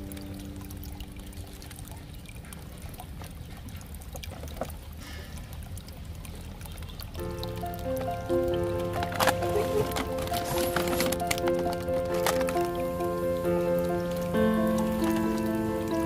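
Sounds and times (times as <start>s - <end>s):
cardboard box clicks and rustles: 9.0s - 12.8s.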